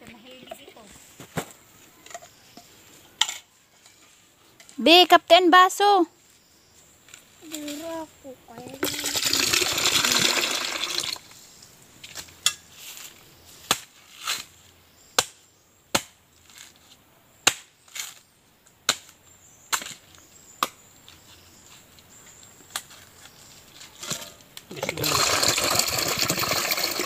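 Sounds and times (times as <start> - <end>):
water splashing into plastic pitcher: 8.8 - 11.2, 24.7 - 27.0
machete chopping coconut husk: 13.6 - 14.5, 15.1 - 16.7, 17.4 - 20.8.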